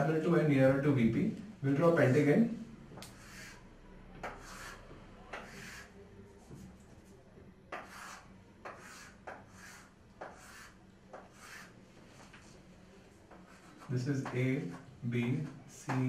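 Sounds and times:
chalk scratching on chalkboard: 3.0 - 6.8, 7.7 - 12.6, 13.3 - 16.0.

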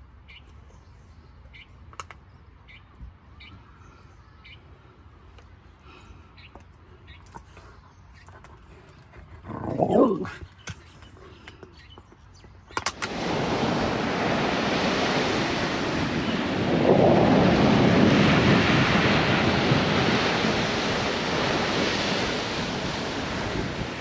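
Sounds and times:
wind buffeting microphone: 12.8 - 24.0
surf breaking on beach: 12.9 - 24.0.

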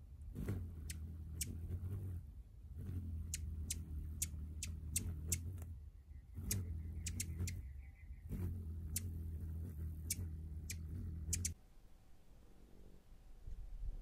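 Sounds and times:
hummingbird wings humming: 0.2 - 11.6.

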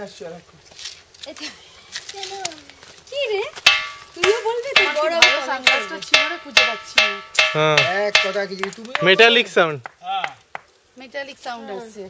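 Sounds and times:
boulder struck with ringing tone: 3.7 - 9.2.

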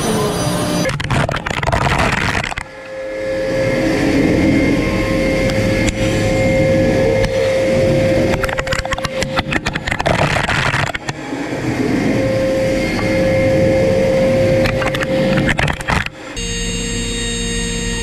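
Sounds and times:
high-pitched milling cutting tone: 0.0 - 1.0, 2.4 - 18.0
low machine hum: 0.0 - 18.0.

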